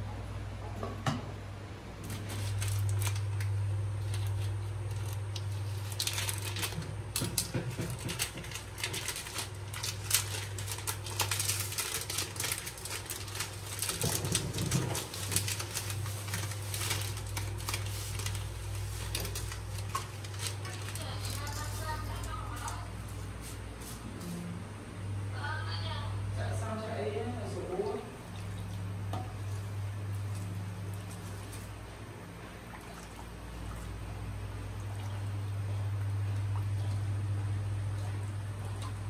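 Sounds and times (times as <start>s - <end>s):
steady low hum: 0.0s - 39.0s
garlic skins crackling: 2.0s - 22.9s.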